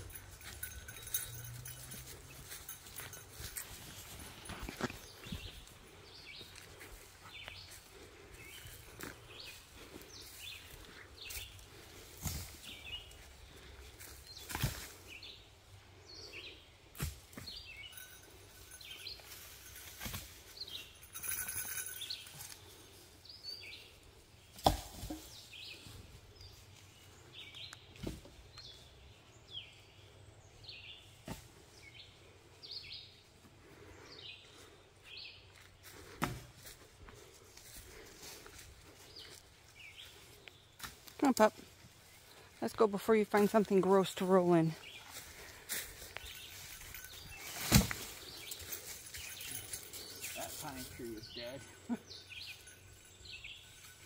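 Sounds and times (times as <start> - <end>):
footsteps on dirt trail: 0.0 - 15.4, 33.8 - 50.6
small birds chirping: 0.0 - 54.0.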